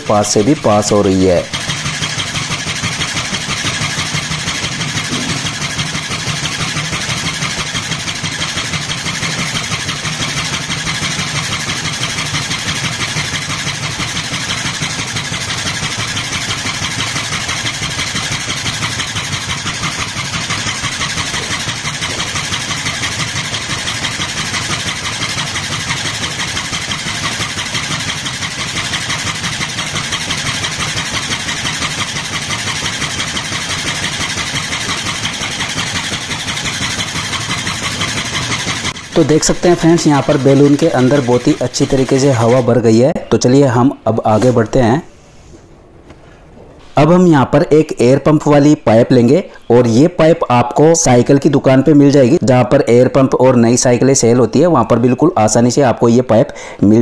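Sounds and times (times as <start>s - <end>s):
gear motor whirring: 0.0s - 45.0s
fast even air pump pulsing: 0.0s - 57.0s.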